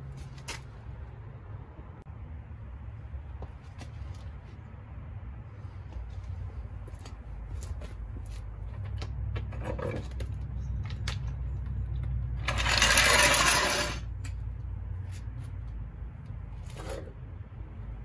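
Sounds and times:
floor jack metal clinks: 12.4 - 14.0
loud rushing scrape: 12.4 - 14.1.

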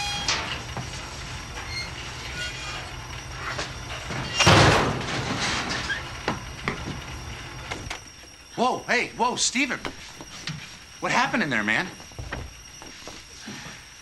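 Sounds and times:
sheet metal scraping and rattling: 0.0 - 6.1
steady low hum: 0.0 - 14.0
debris clattering: 4.0 - 6.0.

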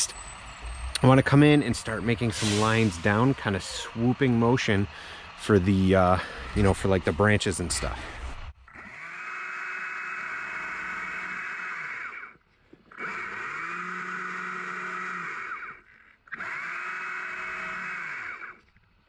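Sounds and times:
chainsaw cutting wood: 8.3 - 18.7.

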